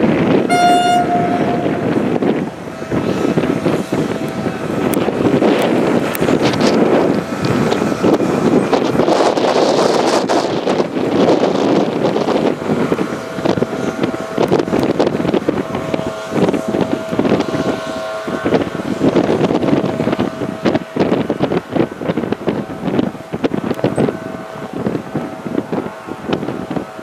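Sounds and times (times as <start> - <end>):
wind buffeting microphone: 0.0 - 27.0
electric train humming: 0.2 - 9.5.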